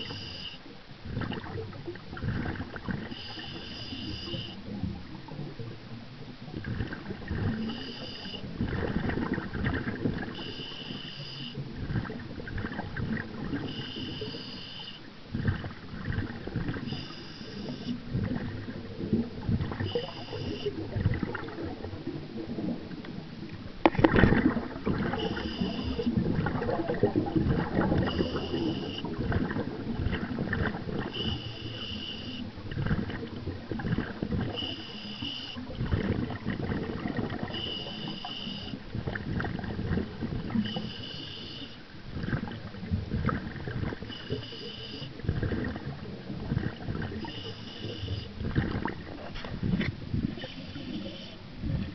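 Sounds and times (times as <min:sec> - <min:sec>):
regulator hiss on inhale: 0:00.0 - 0:00.7, 0:03.0 - 0:04.8, 0:07.6 - 0:08.5, 0:10.3 - 0:11.7, 0:13.6 - 0:15.1, 0:16.8 - 0:18.0, 0:19.9 - 0:20.9, 0:25.2 - 0:26.2, 0:28.0 - 0:29.2, 0:31.1 - 0:32.5, 0:34.5 - 0:35.7, 0:37.5 - 0:38.8, 0:40.6 - 0:41.9, 0:44.0 - 0:45.2, 0:47.2 - 0:48.4, 0:50.4 - 0:51.4
exhale bubbling underwater: 0:00.0 - 0:51.9.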